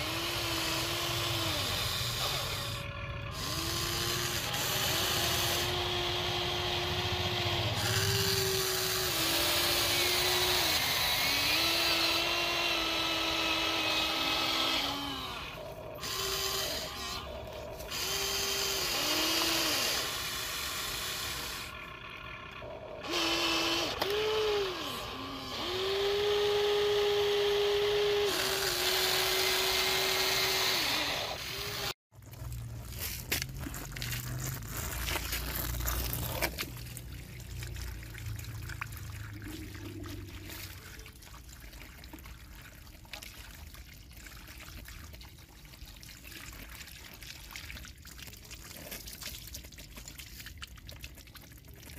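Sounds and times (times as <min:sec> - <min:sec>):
toy excavator motors whining: 0:00.0 - 0:32.0.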